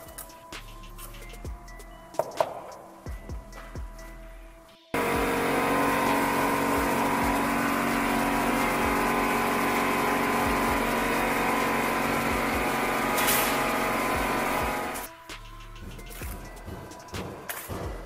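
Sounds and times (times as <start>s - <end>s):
machine motor droning: 5.0s - 15.1s.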